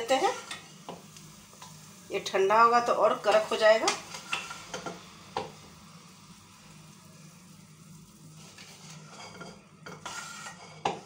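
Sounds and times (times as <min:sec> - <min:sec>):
metal spoon scraping a pan: 0:00.0 - 0:00.7, 0:03.2 - 0:05.0, 0:08.3 - 0:11.0.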